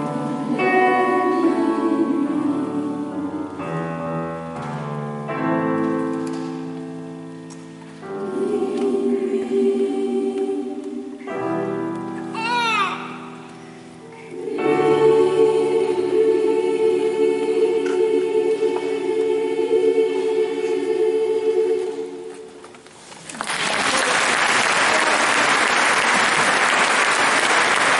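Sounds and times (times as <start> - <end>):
women's choir holding a chord: 0.0 - 4.0, 8.0 - 12.2, 13.2 - 22.7
audience applause: 23.2 - 27.9.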